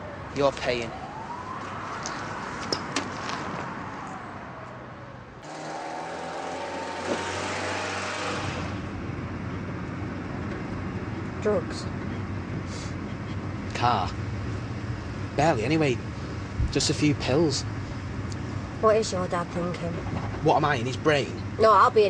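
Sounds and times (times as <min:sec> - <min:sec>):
distant siren wailing: 0:00.0 - 0:10.2.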